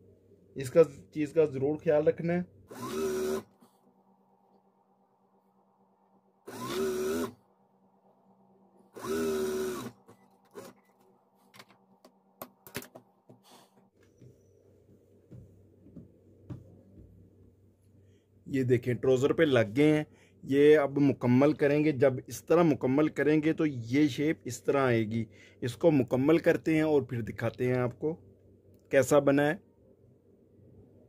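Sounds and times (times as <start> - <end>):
faint steady motor hum: 0.0 - 12.2
sewing machine motor whine: 2.7 - 3.6, 6.5 - 7.4, 8.9 - 10.9.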